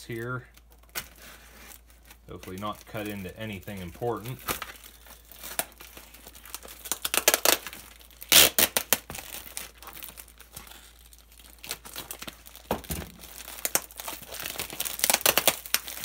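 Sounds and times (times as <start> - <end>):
paper and tape tearing: 5.4 - 10.9, 13.5 - 16.0.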